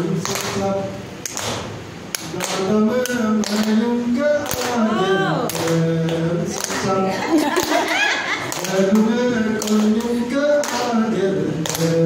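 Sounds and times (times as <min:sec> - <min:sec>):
man singing into microphone: 0:00.0 - 0:01.1, 0:02.2 - 0:12.0
hand claps: 0:00.2 - 0:00.6, 0:01.2 - 0:03.8, 0:04.4 - 0:04.8, 0:05.5 - 0:06.9, 0:08.5 - 0:11.0, 0:11.6 - 0:12.0.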